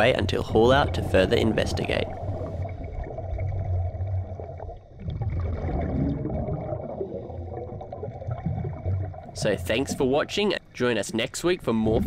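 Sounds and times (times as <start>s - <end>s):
muffled underwater rumble and gurgling: 0.0s - 10.4s
scuba diver exhaled air bubbling: 1.9s - 9.4s.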